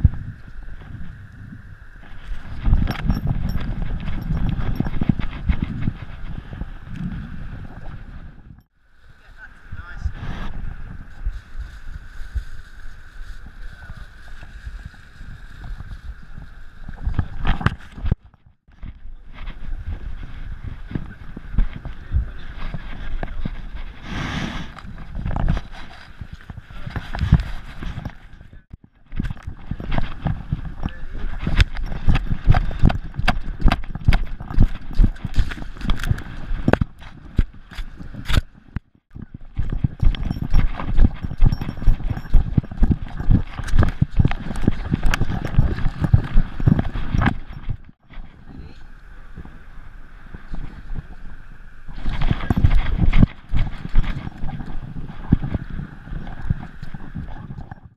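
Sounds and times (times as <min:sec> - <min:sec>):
wind buffeting microphone: 0:00.0 - 0:57.9
steady hiss: 0:08.8 - 0:17.4.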